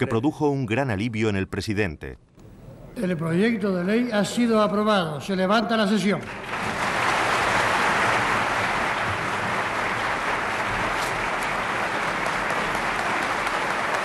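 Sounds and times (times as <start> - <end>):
dense applause: 6.2 - 14.0.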